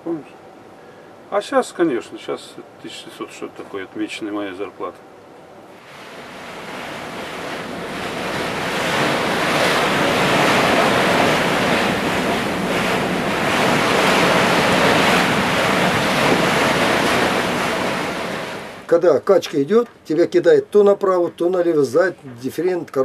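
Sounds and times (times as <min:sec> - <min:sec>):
ocean waves washing: 0:05.5 - 0:18.9.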